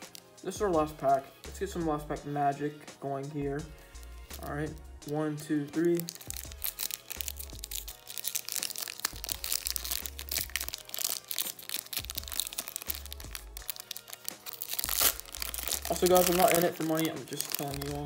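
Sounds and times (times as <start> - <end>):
foil wrapper crinkling: 0.0 - 0.4, 4.4 - 18.0
background music with bass: 0.0 - 18.0.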